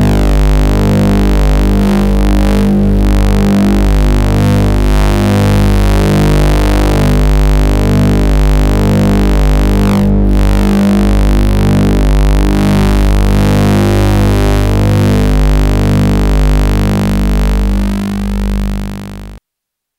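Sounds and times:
buzzy electronic tones: 0.0 - 19.4.

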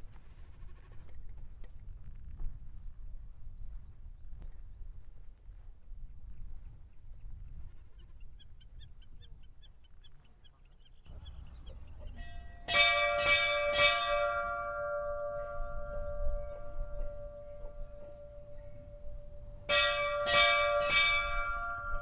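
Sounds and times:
church bell ringing: 11.7 - 22.0.

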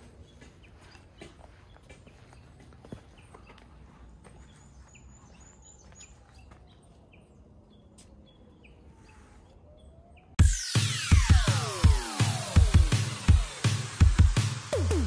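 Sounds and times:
small birds chirping: 0.0 - 10.4
loud electronic music: 10.4 - 15.0.

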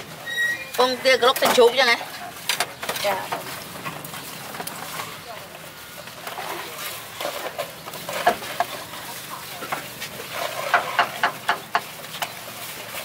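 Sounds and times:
metal utensils clinking and scraping: 0.2 - 5.4.

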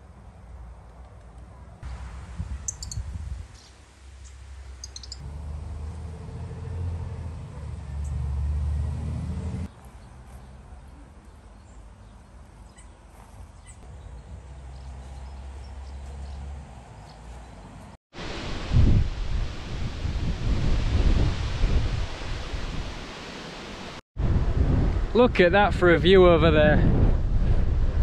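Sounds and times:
bird chirps: 2.6 - 5.2, 11.3 - 13.0.

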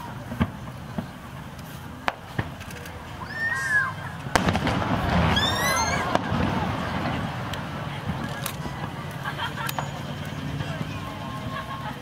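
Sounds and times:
firework bangs and booms: 0.0 - 3.1, 4.1 - 10.9
firework crackle: 0.0 - 12.0
onlookers exclaiming: 3.2 - 7.4.

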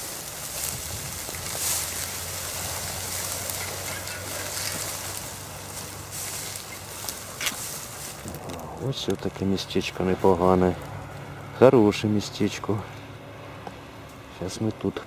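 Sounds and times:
footsteps through dry grass: 0.0 - 11.5
distant road traffic hum: 0.0 - 15.0.

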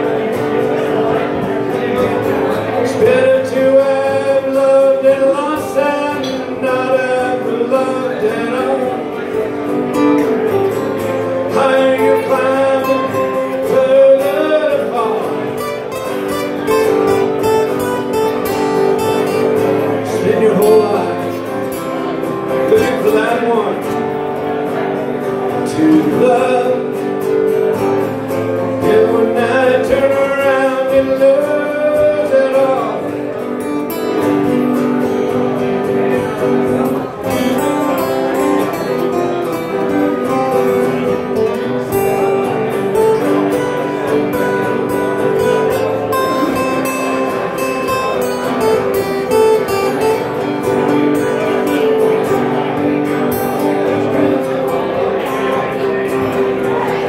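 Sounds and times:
man singing: 0.0 - 57.0
strummed acoustic guitar: 0.0 - 57.0.

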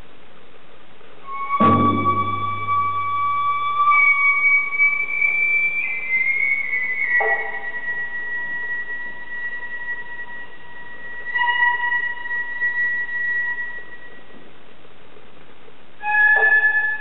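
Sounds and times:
wind instrument holding high note: 1.3 - 14.3.

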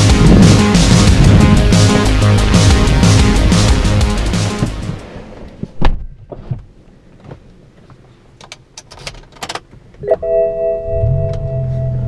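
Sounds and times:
car door shutting thud: 5.6 - 6.7.

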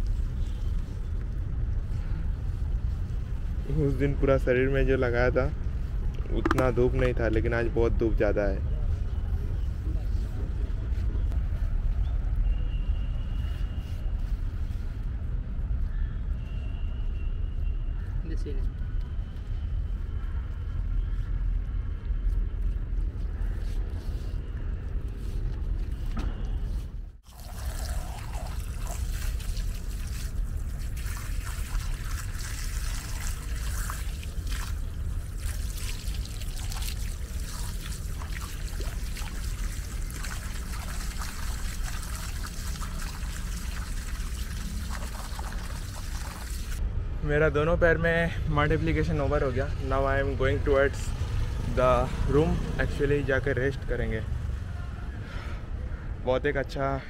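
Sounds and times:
water from hose splashing: 27.2 - 46.8.

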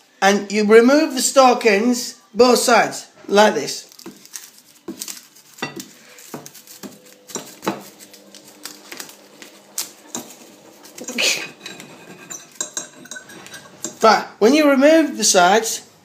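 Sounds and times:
fork scraping ceramic plate: 5.6 - 8.8, 9.4 - 14.0.

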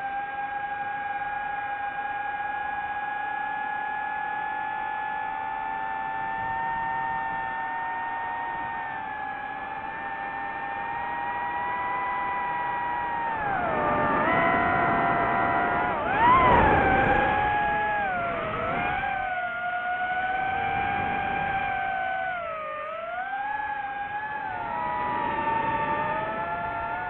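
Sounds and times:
drone motors whining: 0.0 - 27.0.

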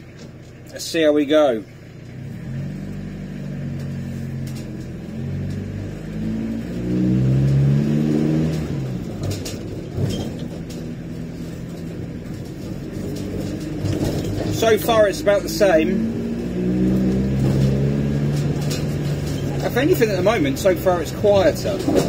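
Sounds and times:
diesel van engine revving: 0.0 - 22.0
light clicks of gear change: 3.7 - 7.8, 16.8 - 22.0.

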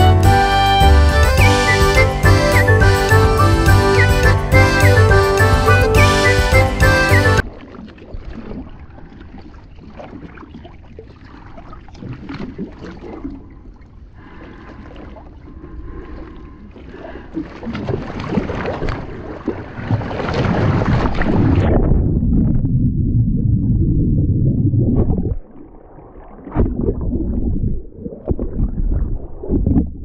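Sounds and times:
water splashing: 7.4 - 22.0
underwater rumble and bubbling: 7.4 - 30.0.

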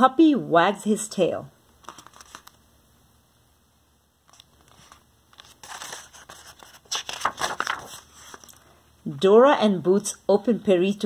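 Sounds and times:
book pages rustling: 1.8 - 2.6, 4.2 - 8.7.

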